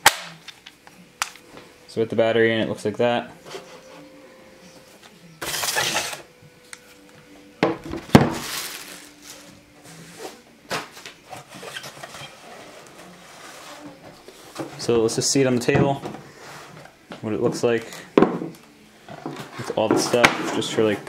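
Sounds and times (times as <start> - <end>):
plastic wrap crinkling: 8.0 - 9.6.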